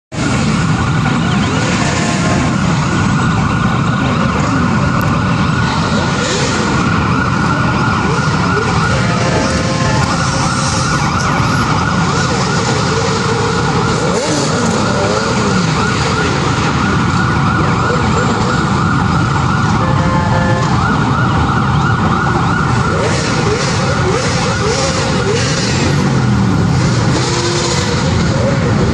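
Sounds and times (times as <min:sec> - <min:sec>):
motorcycle engines revving: 0:00.1 - 0:28.9.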